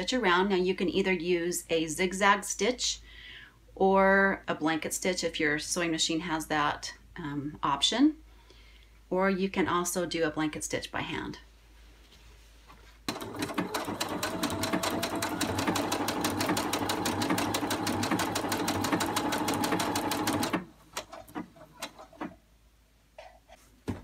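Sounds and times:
sewing machine running: 13.1 - 21.4.

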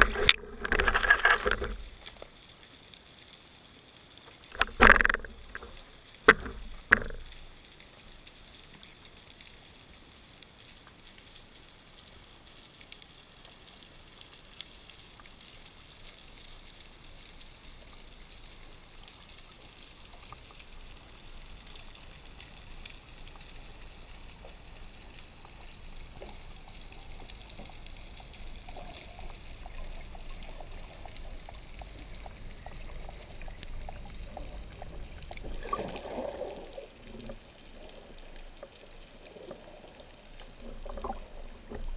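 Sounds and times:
small clicks and crackles: 0.0 - 41.9
underwater hiss: 23.3 - 41.9.

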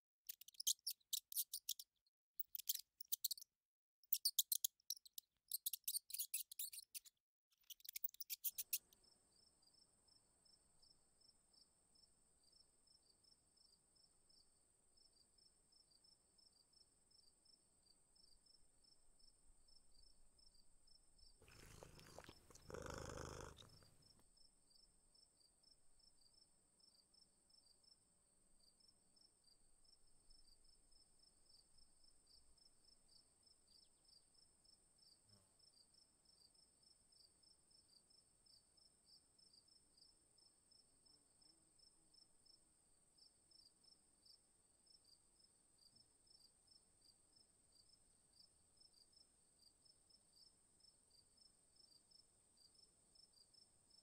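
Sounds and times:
crickets chirping: 21.5 - 23.9
high insect trill: 21.5 - 23.9.

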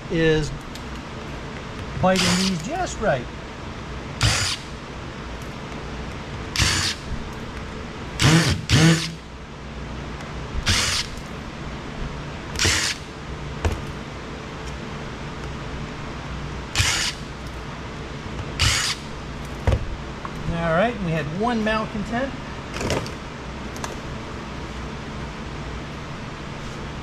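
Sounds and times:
steady low hum: 0.0 - 27.0
cordless power driver bursts: 2.1 - 2.6, 4.2 - 4.7, 6.5 - 7.1, 8.2 - 9.2, 10.6 - 11.2, 12.6 - 13.1, 16.7 - 17.2, 18.6 - 19.1.

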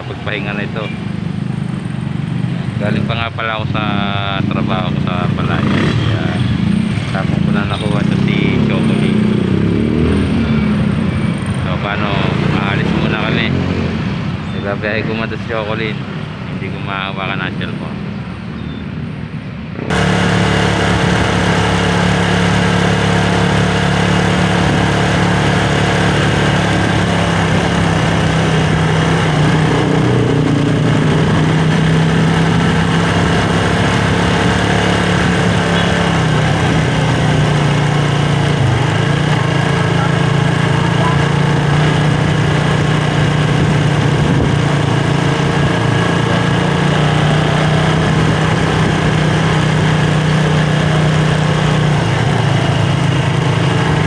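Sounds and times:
motorcycle engine running: 0.0 - 13.8, 19.8 - 54.0
steady rushing noise: 19.6 - 54.0.

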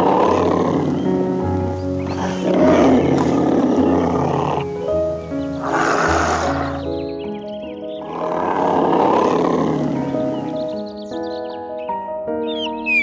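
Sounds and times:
tiger growling: 0.0 - 7.0, 8.0 - 10.8
background music with held notes: 0.0 - 13.0.

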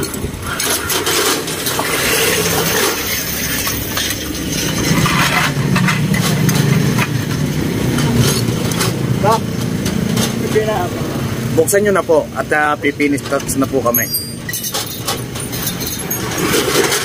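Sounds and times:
metal roll-up shutter rattling down: 0.0 - 11.5, 14.1 - 17.0.

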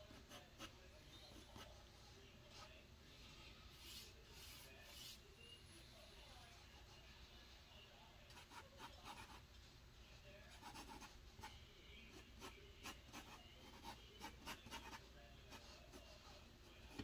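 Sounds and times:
drawing tool scratching: 12.1 - 17.0.

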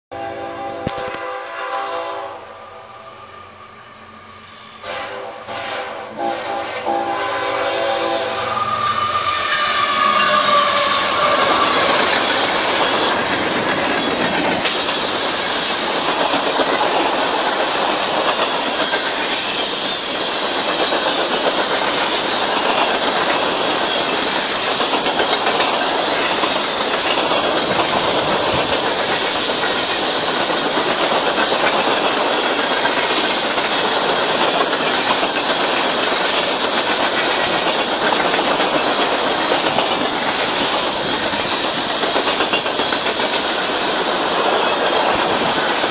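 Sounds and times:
freight train rolling past: 0.1 - 45.9
steel wheels clattering on rails: 9.4 - 45.9.

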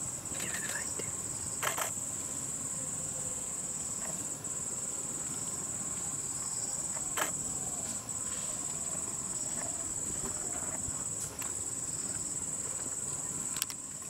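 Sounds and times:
insect chorus drone: 0.0 - 14.0.

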